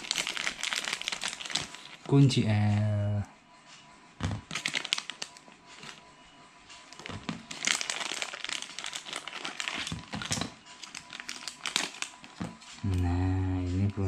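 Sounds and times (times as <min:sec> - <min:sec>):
plastic bag crinkling: 0:00.0 - 0:02.0, 0:04.4 - 0:06.0, 0:06.9 - 0:12.6.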